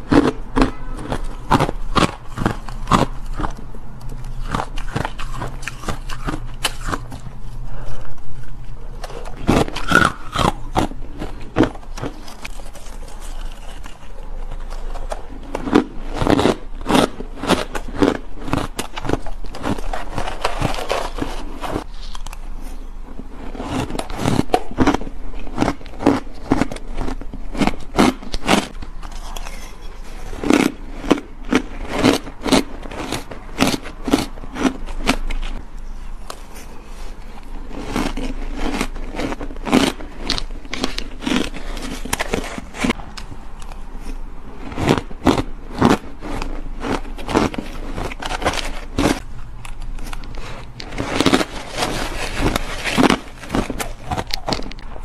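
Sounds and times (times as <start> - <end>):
frozen ice crunching being chewed: 0.0 - 55.0
spoon scraping a bowl: 29.0 - 30.6.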